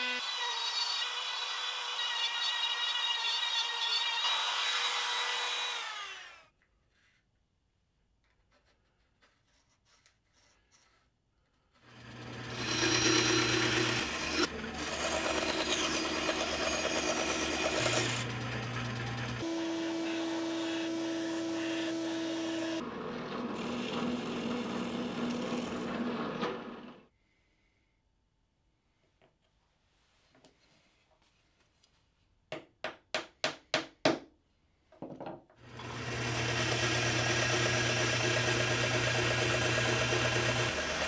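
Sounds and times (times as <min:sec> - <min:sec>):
drill boring through plywood: 0:00.0 - 0:06.5, 0:11.8 - 0:27.0, 0:35.6 - 0:41.0
power saw cutting board: 0:00.0 - 0:06.5, 0:11.8 - 0:27.0, 0:35.6 - 0:41.0
router cutting wood: 0:00.0 - 0:06.5, 0:11.8 - 0:27.0, 0:35.6 - 0:41.0.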